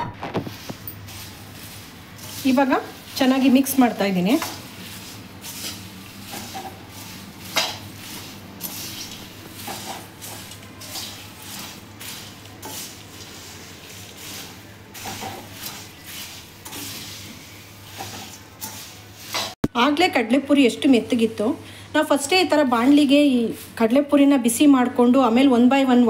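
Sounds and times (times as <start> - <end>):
puffed rice rustling: 0.2 - 19.6
metal spatula scraping pan: 0.5 - 19.6.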